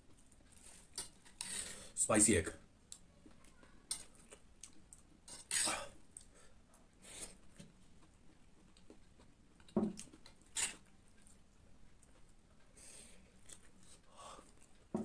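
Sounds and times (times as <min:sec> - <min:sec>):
quiet chewing: 0:02.9 - 0:15.0
metal spoon scraping steel plate: 0:10.6 - 0:10.8.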